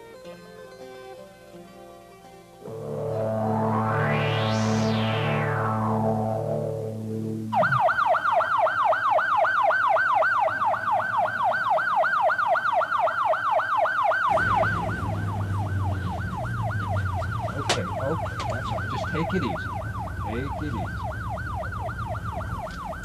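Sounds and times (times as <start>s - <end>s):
engine and road rumble: 2.7s - 8.3s, 9.0s - 23.0s
ambulance siren yelping: 2.7s - 23.0s.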